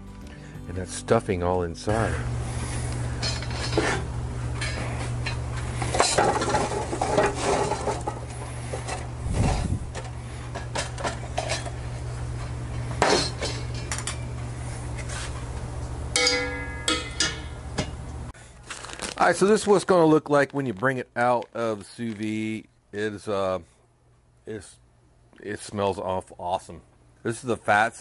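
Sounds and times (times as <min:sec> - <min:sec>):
charcoal clattering into metal firebox: 0:03.1 - 0:12.0, 0:12.8 - 0:14.3.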